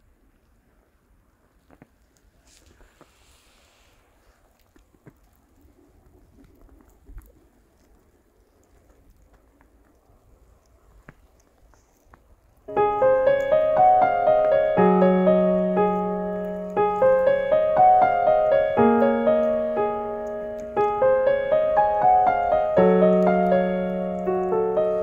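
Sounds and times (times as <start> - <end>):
calm piano music: 12.7 - 25.0.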